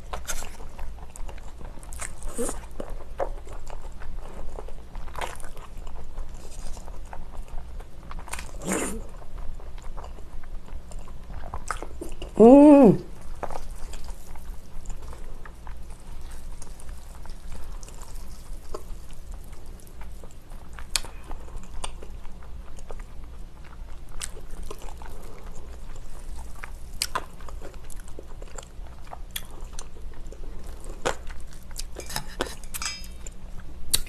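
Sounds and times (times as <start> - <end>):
steady low hum: 0.0 - 34.0
person chewing and slurping noodles: 13.1 - 34.0.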